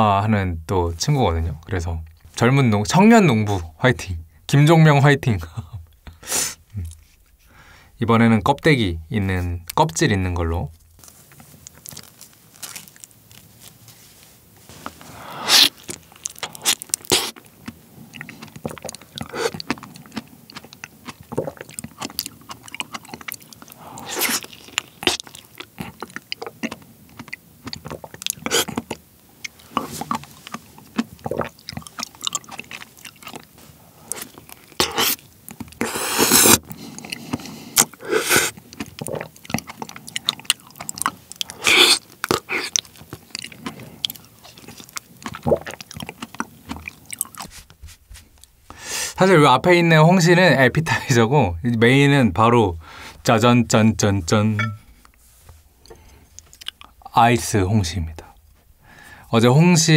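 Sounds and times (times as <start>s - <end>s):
slurp: 15.0s - 17.4s, 18.1s - 33.4s, 35.8s - 47.6s
wet eating smacks and bites: 15.6s - 47.8s.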